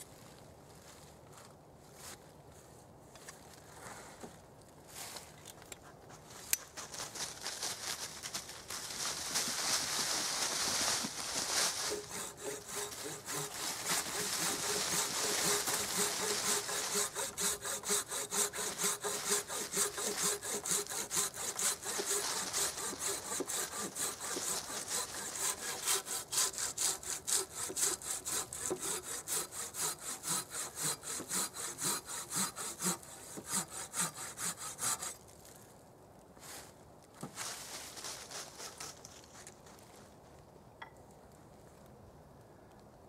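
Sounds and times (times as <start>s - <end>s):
hand saw cutting log: 11.7s - 35.2s.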